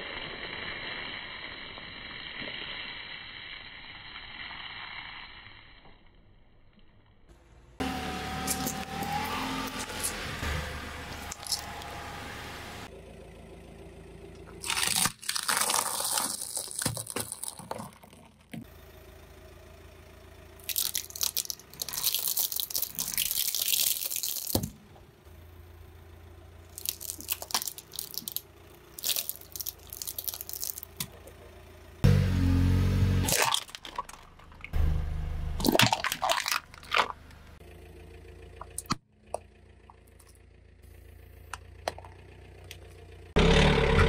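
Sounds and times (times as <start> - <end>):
tyre crushing pine cones: 8.1 - 12.2, 14.5 - 18.7, 20.6 - 24.8, 26.7 - 31.4, 32.1 - 34.8.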